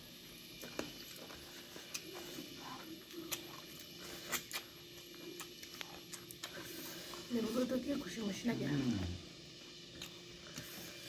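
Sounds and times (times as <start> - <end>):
people chewing food: 0.0 - 11.0
mouth smacking clicks: 4.3 - 4.7, 5.3 - 6.6.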